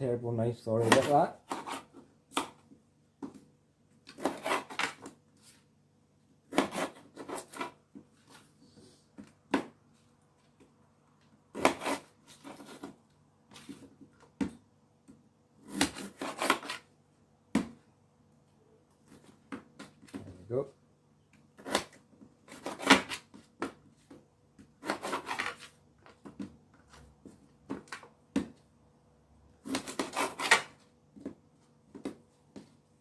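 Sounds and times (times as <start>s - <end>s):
knife cutting potato on tray: 0.8s - 2.6s, 4.1s - 5.2s, 6.5s - 7.8s, 11.5s - 13.8s, 15.6s - 16.8s, 24.6s - 25.7s, 29.6s - 30.8s.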